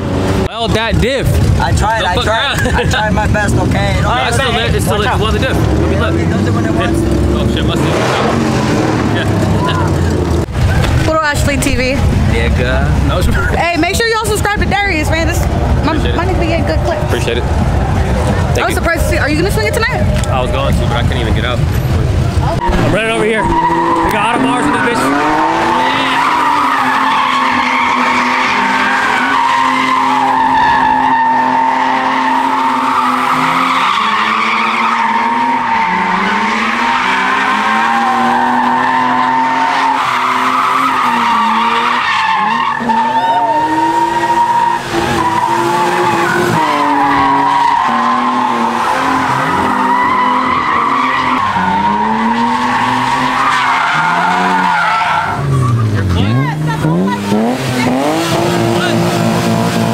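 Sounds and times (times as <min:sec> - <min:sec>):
car engine revving: 0:00.0 - 0:59.9
tyres squealing: 0:22.4 - 0:59.6.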